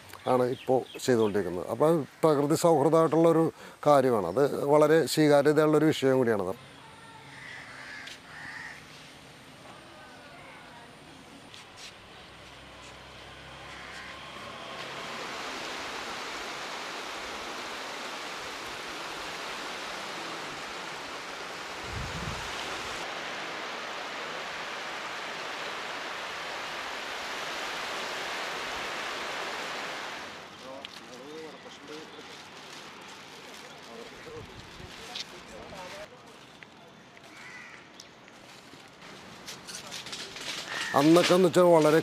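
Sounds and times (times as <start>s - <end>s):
waves washing onto beach: 13.8s - 30.7s.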